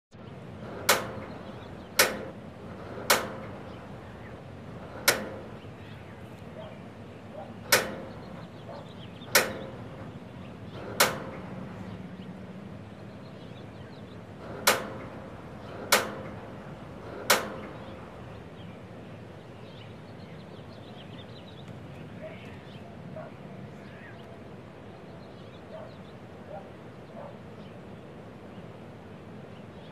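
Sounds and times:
gas grill igniter clicking: 0.9s - 1.3s, 2.0s - 2.4s, 3.1s - 3.6s, 5.0s - 5.5s, 7.7s - 8.4s, 9.3s - 9.8s, 14.6s - 16.4s, 17.2s - 17.9s.

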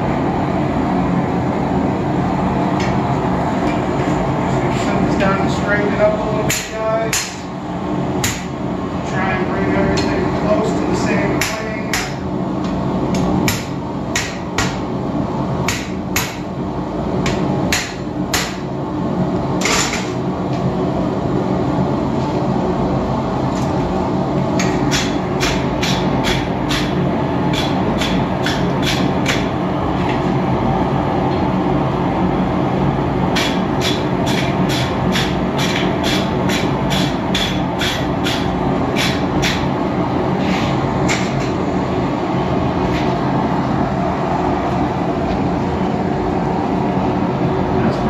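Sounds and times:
hammer striking steel on anvil: 6.5s - 7.4s, 8.2s - 8.5s, 15.7s - 16.4s, 17.3s - 18.6s, 24.9s - 29.5s, 33.4s - 39.6s.

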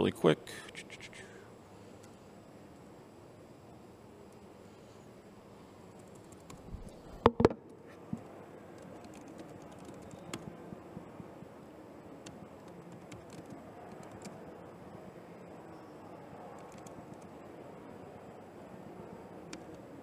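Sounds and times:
faint background hum: 0.0s - 20.0s
keyboard key clicks: 12.2s - 14.4s, 16.6s - 17.3s.

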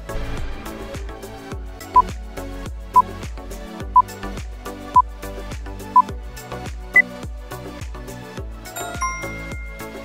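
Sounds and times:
bright chime: 8.8s - 10.0s.

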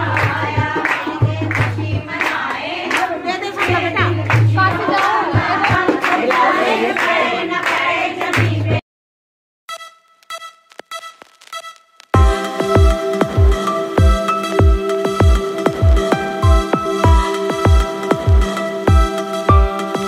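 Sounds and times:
women singing together: 0.0s - 8.8s
hand clapping: 0.1s - 8.5s.

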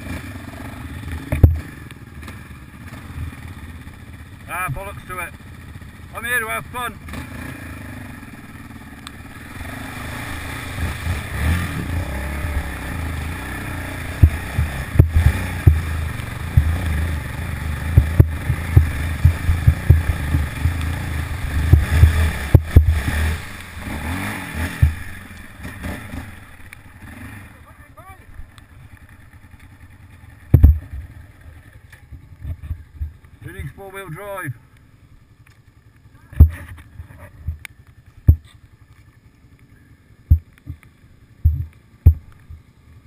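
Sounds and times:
quad bike engine running hard: 0.0s - 43.0s
knocks and thumps from bike: 1.2s - 2.4s, 14.1s - 17.1s, 17.9s - 23.3s, 24.6s - 25.1s, 30.5s - 31.1s, 31.9s - 33.3s, 36.3s - 37.6s, 38.2s - 38.6s, 40.3s - 40.8s, 41.4s - 42.6s
water splashing: 8.7s - 26.9s.

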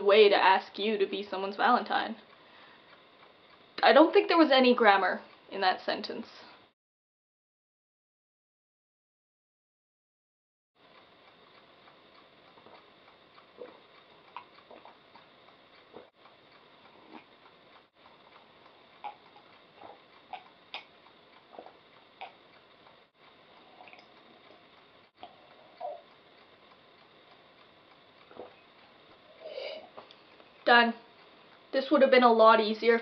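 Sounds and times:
mouth clicks: 11.5s - 31.7s.

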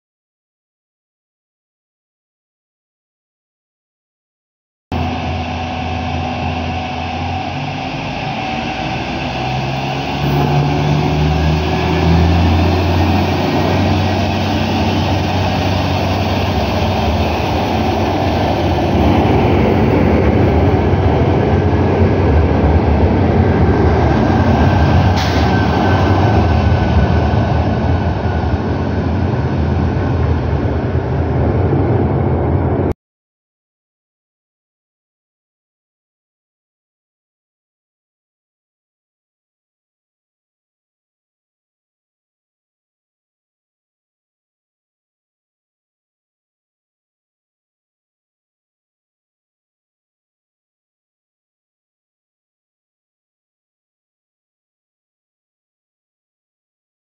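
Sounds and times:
diesel railcar engine accelerating: 4.9s - 33.0s
wheel and rail noise: 5.0s - 32.9s.

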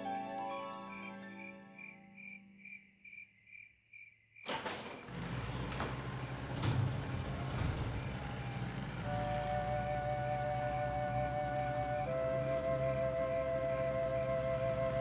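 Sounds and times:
crickets chirping: 0.9s - 5.1s
clunks: 4.4s - 9.8s.

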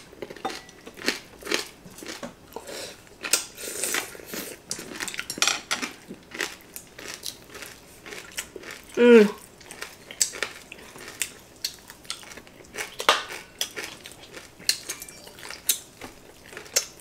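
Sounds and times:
crunching of crispy food: 0.1s - 2.2s, 5.8s - 17.0s.

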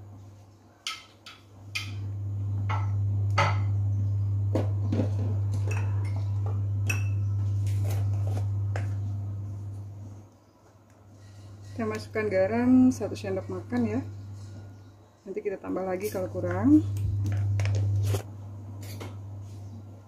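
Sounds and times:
low hum: 1.8s - 10.4s, 15.7s - 20.0s.

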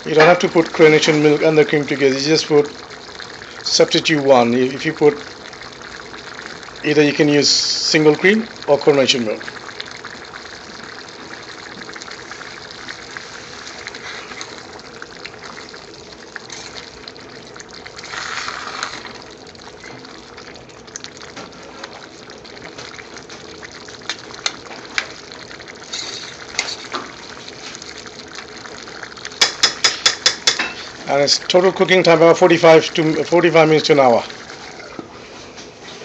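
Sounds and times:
gravy sloshing: 0.0s - 7.3s, 8.0s - 36.0s
gravy bubbling in a pan: 0.0s - 36.0s
ladle clicking against pan: 29.4s - 30.8s.

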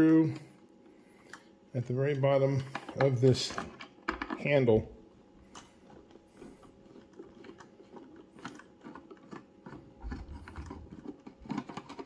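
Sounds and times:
screwdriver clicking and scraping: 6.9s - 12.0s.

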